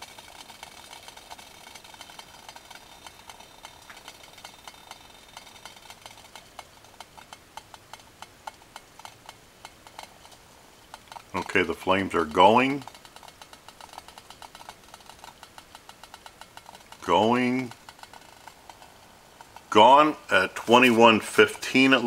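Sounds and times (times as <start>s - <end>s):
stove flame hissing: 0.0s - 22.0s
ticks and crackles: 0.0s - 22.0s.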